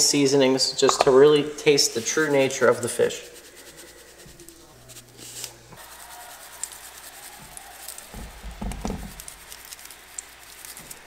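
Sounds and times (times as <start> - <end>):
seasoning granules pattering: 1.3 - 11.0
dull knocks: 8.1 - 9.3.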